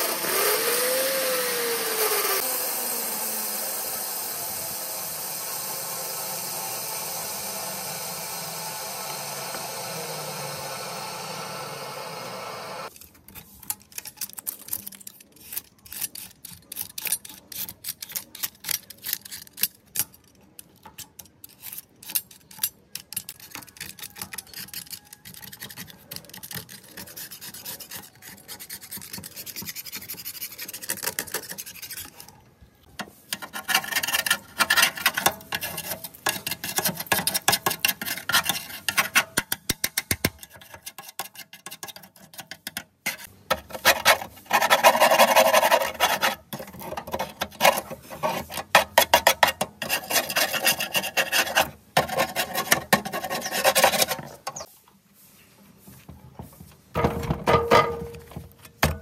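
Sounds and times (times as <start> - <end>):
hand scraper rasping metal: 0.0 - 12.9, 15.3 - 19.8, 21.4 - 32.4, 33.0 - 54.7.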